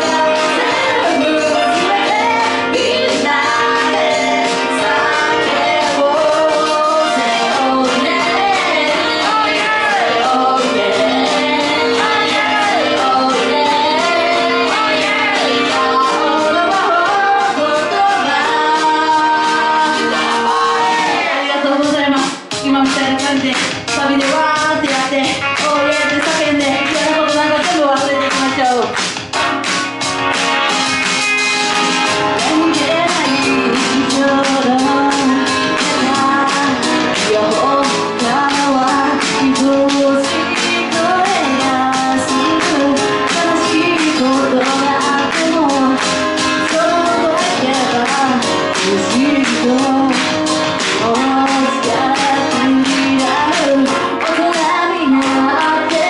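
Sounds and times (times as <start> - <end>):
woman singing into a microphone: 0.0 - 29.0, 32.2 - 56.0
backing music with steady beat: 0.0 - 56.0.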